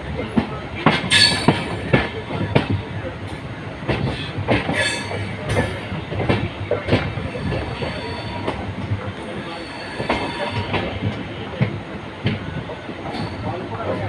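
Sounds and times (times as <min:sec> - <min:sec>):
low train rumble: 0:00.0 - 0:14.0
train wheels clattering: 0:00.2 - 0:14.0
high wheel squeal: 0:07.2 - 0:08.6, 0:09.3 - 0:11.0.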